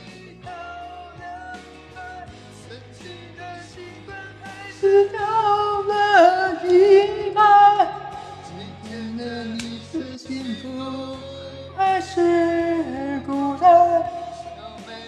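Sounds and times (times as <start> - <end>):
man singing: 0.0 - 15.0
pop backing track: 0.0 - 15.0.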